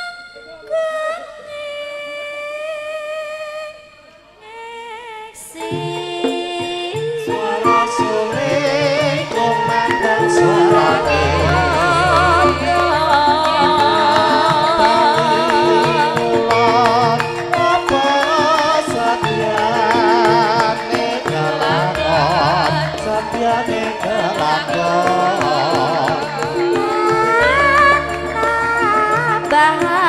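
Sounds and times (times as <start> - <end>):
woman singing ornamented vocal: 4.4 - 30.0
gamelan ensemble ringing tones: 7.3 - 30.0.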